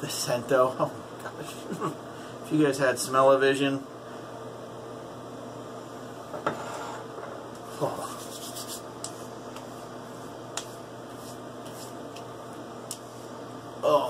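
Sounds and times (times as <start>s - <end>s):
steady low hum: 0.0s - 14.0s
hands rubbing skin: 8.0s - 9.9s, 10.5s - 12.3s
sharp pats on skin: 8.1s - 9.8s, 10.5s - 10.8s
man saying oh: 13.8s - 14.0s.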